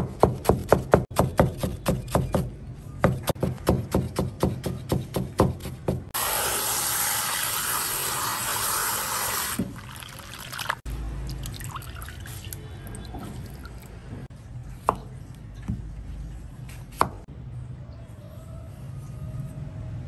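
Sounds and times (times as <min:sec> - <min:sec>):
water splashing in bowl: 0:09.5 - 0:14.0.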